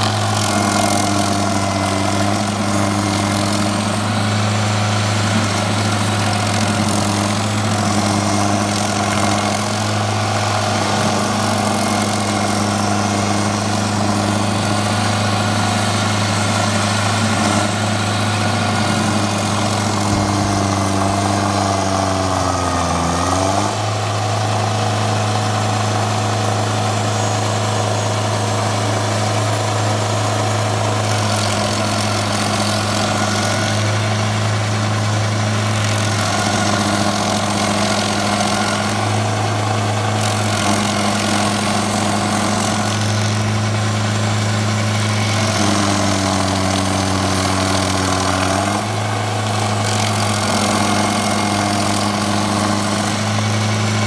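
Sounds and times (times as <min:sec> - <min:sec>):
cutter wheel grinding stump: 0:00.0 - 0:54.0
diesel engine running: 0:00.0 - 0:54.0.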